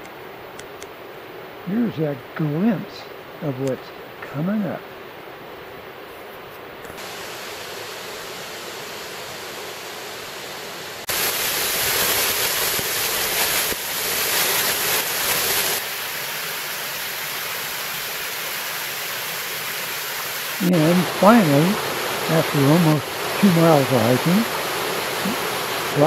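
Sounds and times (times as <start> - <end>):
water rushing down rocky cascade: 7.0 - 26.0.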